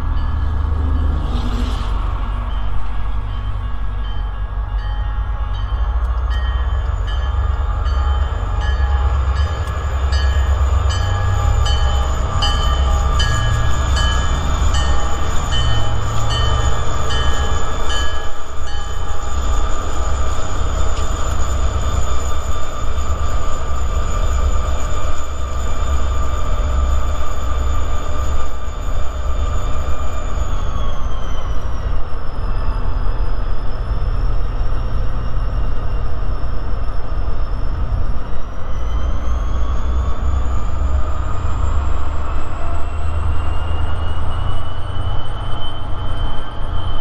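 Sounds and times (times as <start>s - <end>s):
railroad crossing bell dinging: 0.0s - 30.9s
freight train rumble: 0.0s - 47.0s.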